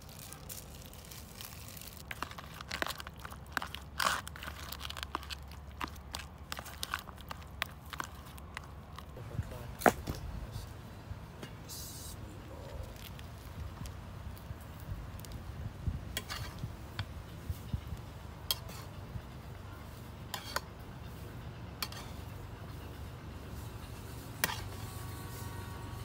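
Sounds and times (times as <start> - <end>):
metal spatula scraping a pan: 20.3 - 21.2, 21.8 - 22.3, 24.4 - 25.6.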